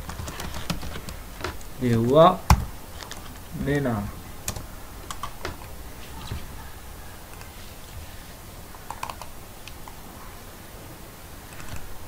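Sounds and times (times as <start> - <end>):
keyboard and mouse clicks: 0.0 - 3.3, 4.5 - 6.4, 8.8 - 10.0, 11.5 - 11.9
low steady hiss: 0.0 - 12.0.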